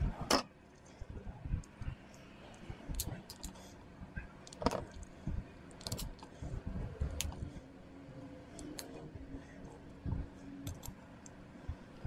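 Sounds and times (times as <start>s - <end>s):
sharp plastic clicks: 1.6s - 3.6s, 4.4s - 6.3s, 10.6s - 11.4s
plastic parts knocking and rubbing: 4.5s - 5.0s.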